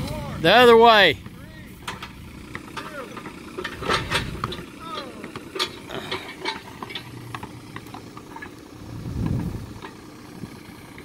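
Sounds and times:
diesel engine running: 0.0 - 11.0
sharp clicks and knocks: 1.8 - 8.6.

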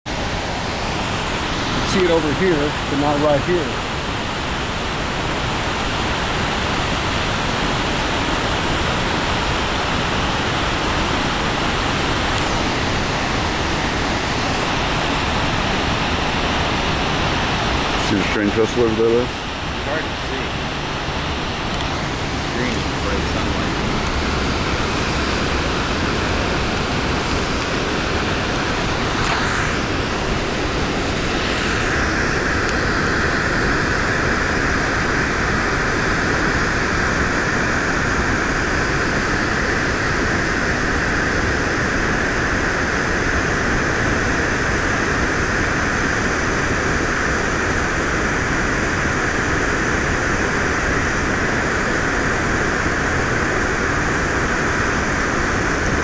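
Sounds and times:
waterfall rushing: 0.1 - 41.6.

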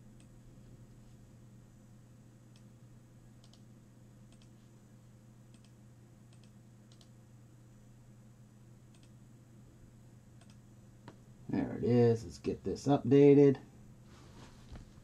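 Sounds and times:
low steady hum: 0.0 - 15.0
computer mouse clicks: 3.4 - 3.7, 4.3 - 4.6, 5.5 - 7.2, 8.9 - 9.2, 10.4 - 10.6.

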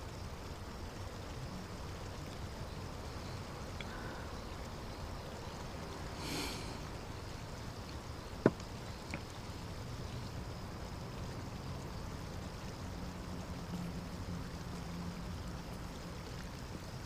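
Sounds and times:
running water hiss: 0.0 - 17.0.

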